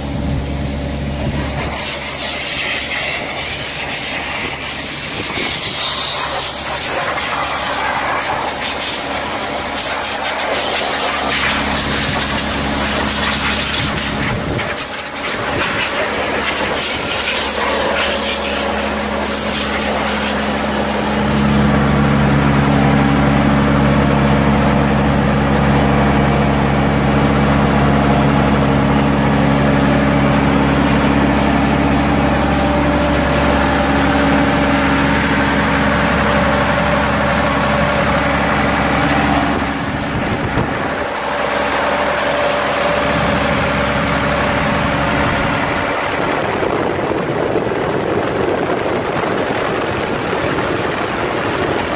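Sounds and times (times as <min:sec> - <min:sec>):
diesel engine running: 0:00.0 - 0:51.9
air blowing hiss: 0:01.3 - 0:21.7.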